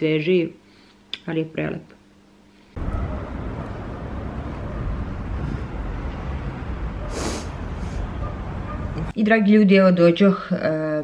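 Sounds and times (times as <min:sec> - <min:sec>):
traffic: 0:02.8 - 0:09.1.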